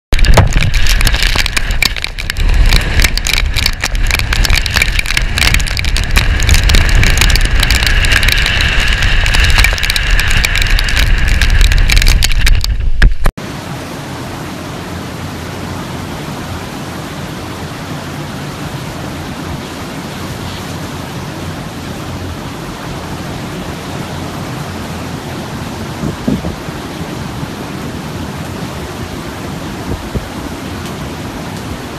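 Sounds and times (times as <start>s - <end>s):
wind buffeting microphone: 0.1s - 13.3s, 25.8s - 27.6s, 29.4s - 31.9s
heavy surf rushing: 0.1s - 31.9s.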